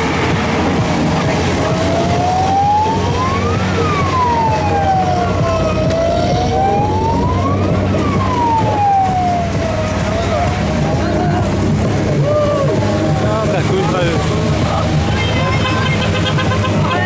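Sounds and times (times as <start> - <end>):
wailing siren: 0.0 - 13.2
vehicle engine running: 0.0 - 17.0.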